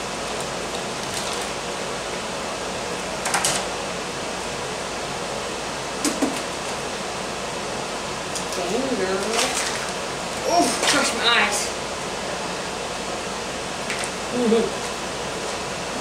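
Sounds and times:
plastic packaging crinkling: 0:01.0 - 0:01.5.

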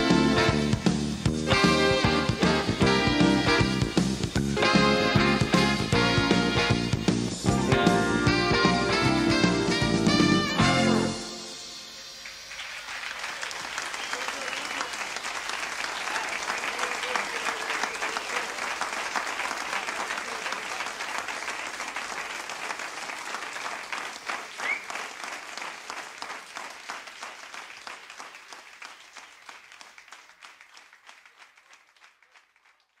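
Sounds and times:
audience applauding: 0:00.0 - 0:33.0
short rising whistle: 0:11.2 - 0:13.0.

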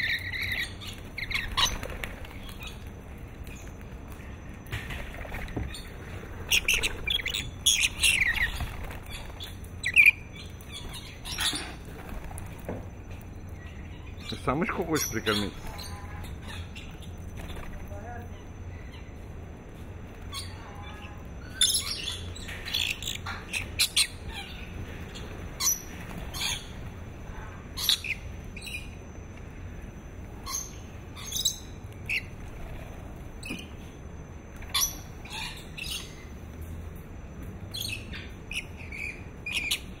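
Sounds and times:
lorikeets squawking: 0:00.0 - 0:02.9, 0:05.7 - 0:11.9, 0:13.6 - 0:17.8, 0:20.3 - 0:26.8, 0:27.7 - 0:29.0, 0:34.7 - 0:36.3, 0:37.8 - 0:40.0.

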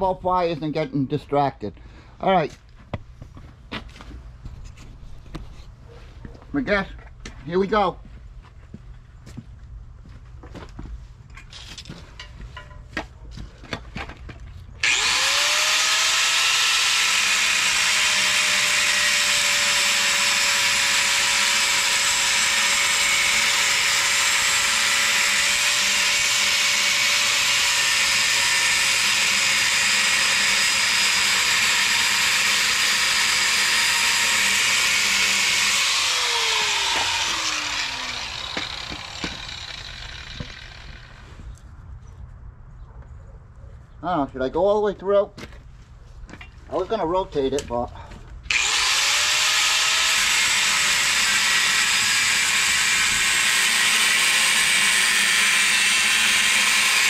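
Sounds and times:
angle grinder cutting steel: 0:14.8 - 0:41.2, 0:48.5 - 0:57.0.

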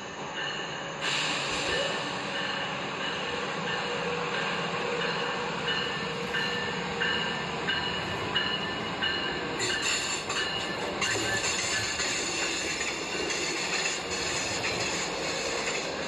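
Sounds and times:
toy train clattering on track: 0:05.7 - 0:16.0.

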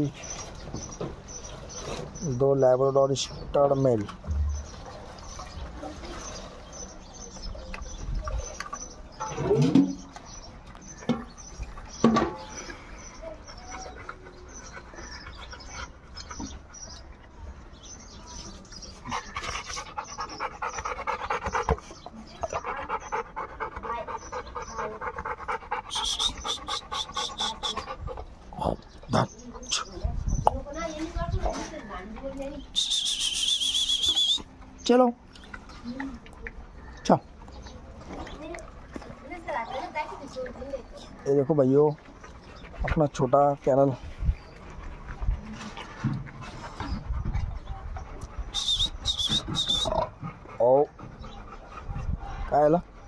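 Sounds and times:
dog panting: 0:12.8 - 0:17.2, 0:18.6 - 0:30.0, 0:38.8 - 0:53.0.

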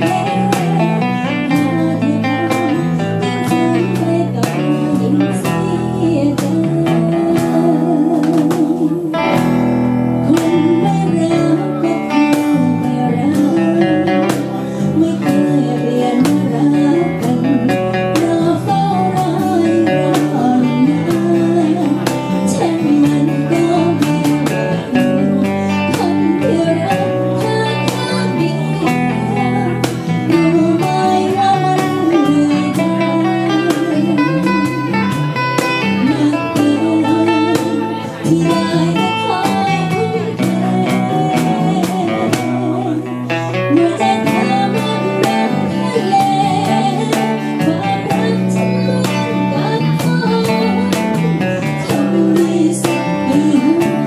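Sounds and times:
woman singing with vibrato: 0:00.0 - 0:54.0.

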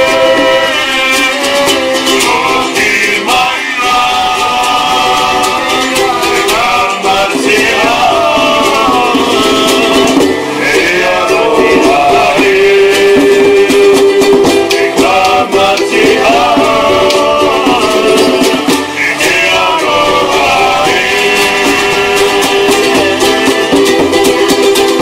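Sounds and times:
men singing together: 0:00.0 - 0:25.0
strummed ukulele and guitar: 0:00.0 - 0:25.0
hand drum tapping: 0:05.2 - 0:25.0.

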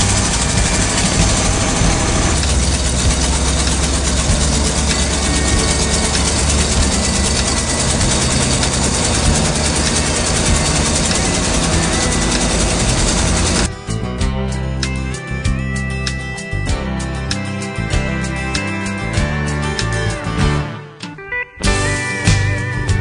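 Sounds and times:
road noise: 0:00.0 - 0:13.8
truck engine drone: 0:00.0 - 0:20.7.

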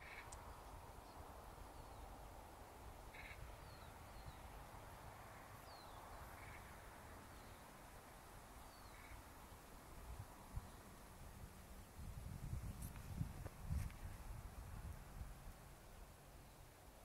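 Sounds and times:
short bird calls: 0:00.0 - 0:00.6, 0:03.1 - 0:04.4, 0:05.6 - 0:06.8, 0:08.6 - 0:09.3
faint outdoor ambience: 0:00.0 - 0:17.0.

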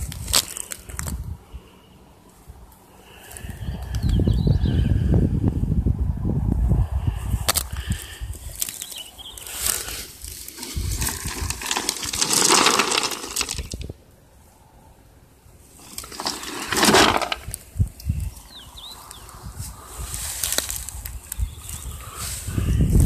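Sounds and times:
grass rustling: 0:00.0 - 0:03.6, 0:07.1 - 0:14.0, 0:15.6 - 0:23.0
gravel crunching: 0:00.0 - 0:04.1, 0:07.2 - 0:14.1, 0:15.6 - 0:23.0
high bird chirps: 0:18.1 - 0:19.4.

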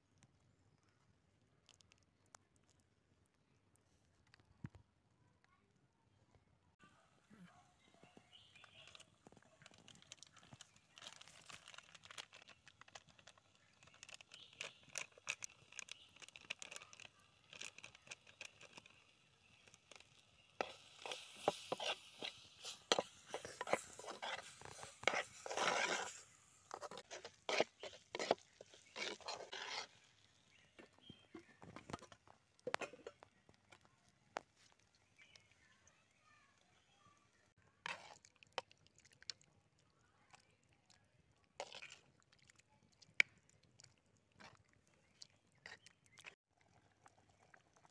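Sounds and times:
ladle scraping and knocking pot: 0:19.6 - 0:33.3.

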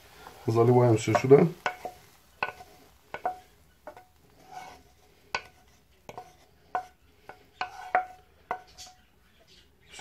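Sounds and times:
spatula scraping pan: 0:00.1 - 0:09.4
pan knocking against metal bowl: 0:01.1 - 0:04.1, 0:05.4 - 0:09.0.

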